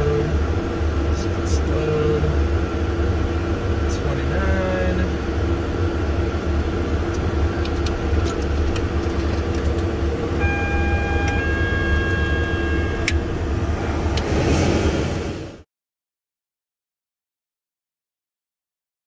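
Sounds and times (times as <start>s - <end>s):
jet engine rumble: 0.0s - 15.6s
steady high tones: 10.0s - 14.2s.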